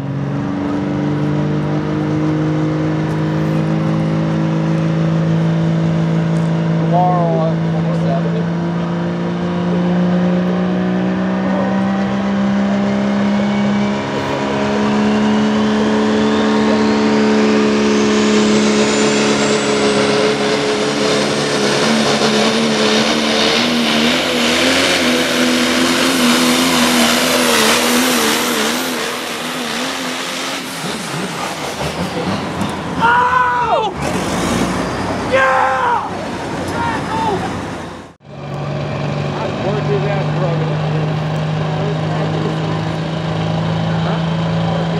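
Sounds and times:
high whine: 0:10.4 - 0:34.0
truck engine running flat out: 0:10.4 - 0:44.9.

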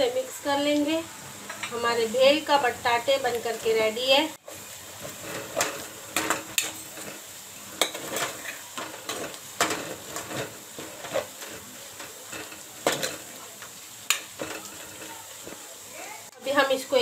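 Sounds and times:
potatoes sizzling: 0:00.0 - 0:17.0
metal spoon scraping a pan: 0:04.4 - 0:15.9.

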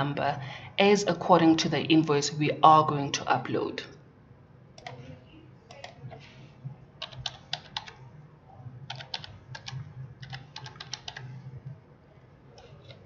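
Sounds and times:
keyboard keys tapping: 0:07.0 - 0:08.0, 0:08.9 - 0:11.8.

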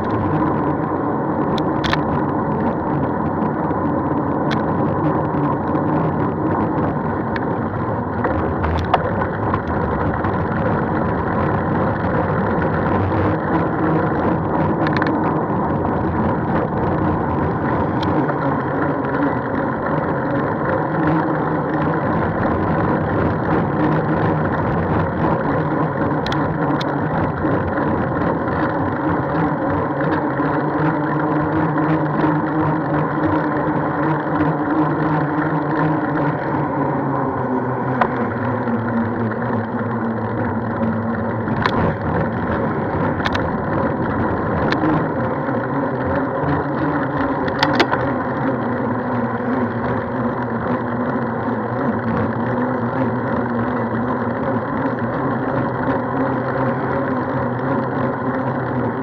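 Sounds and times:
vehicle running noise: 0:00.0 - 0:59.0
sharp clicks: 0:47.4 - 0:48.1.

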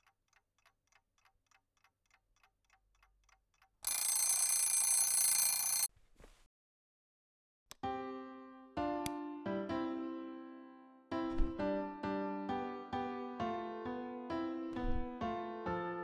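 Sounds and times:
alarm clock ticking: 0:00.0 - 0:05.9
alarm clock ringing: 0:03.8 - 0:05.9.

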